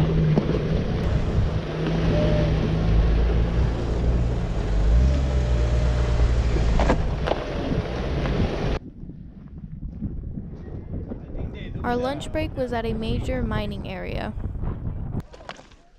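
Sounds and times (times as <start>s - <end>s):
wind buffeting microphone: 0.0s - 5.1s, 5.8s - 15.3s
engine running at low speed: 0.0s - 8.8s.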